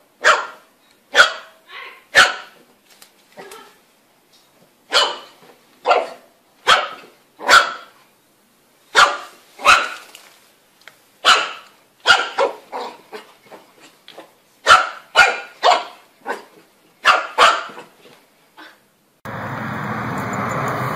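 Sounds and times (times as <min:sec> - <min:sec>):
puppy barking: 0:00.2 - 0:02.6, 0:04.9 - 0:08.0, 0:08.9 - 0:10.1, 0:11.2 - 0:13.3, 0:14.2 - 0:18.0.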